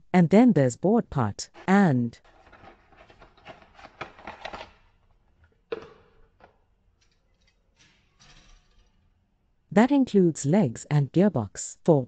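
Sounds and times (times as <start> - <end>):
plastic rustling and clattering: 2.2 - 9.1.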